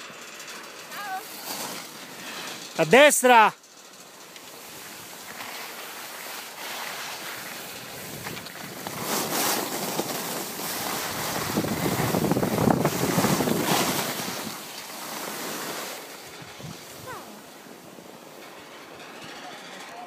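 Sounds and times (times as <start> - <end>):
skis scraping over snow: 0.0 - 20.0
wind buffeting microphone: 10.8 - 14.6, 16.2 - 17.3.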